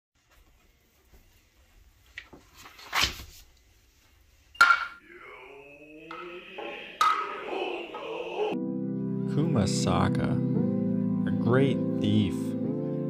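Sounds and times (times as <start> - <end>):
rising pitched tones: 4.9 - 8.7
intro music: 5.0 - 11.5.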